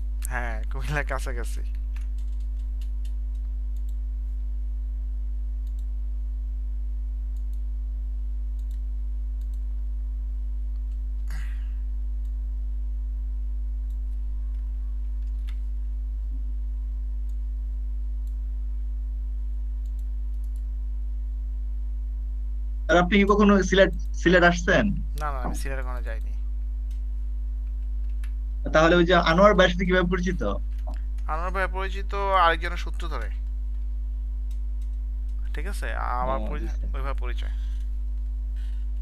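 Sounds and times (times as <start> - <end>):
low electrical hum: 0.0 - 39.0
faint clicks: 1.6 - 4.0, 5.6 - 5.9, 7.3 - 7.7, 8.6 - 9.7, 19.8 - 20.7, 26.0 - 28.4.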